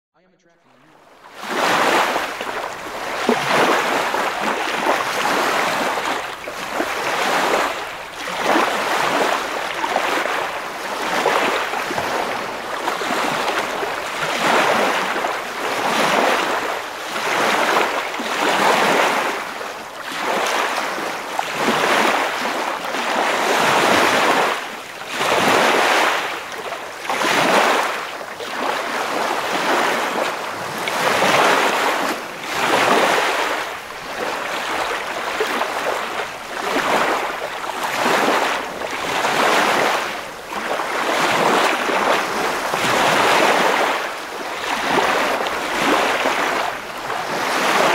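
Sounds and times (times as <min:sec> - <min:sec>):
waves breaking: 0:00.9 - 0:47.9.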